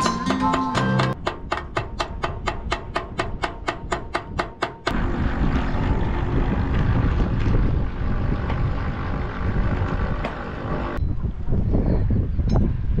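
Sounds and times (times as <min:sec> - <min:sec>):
plucked-string background music: 0:00.0 - 0:01.2
steady low rumble: 0:01.1 - 0:13.0.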